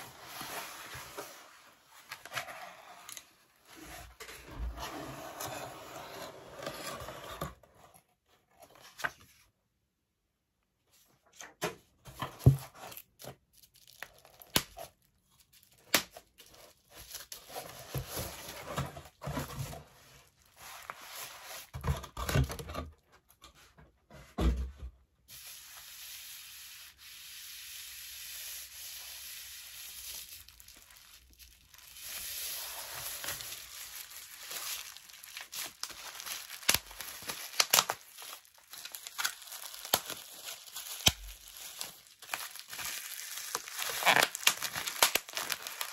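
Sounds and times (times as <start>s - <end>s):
bubble wrap crinkling: 12.8s - 19.3s, 25.4s - 45.9s.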